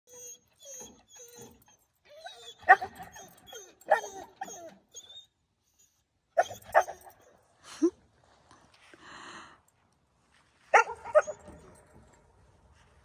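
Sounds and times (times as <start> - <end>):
dog whining: 0.1 - 7.2
dog barking: 10.7 - 11.4.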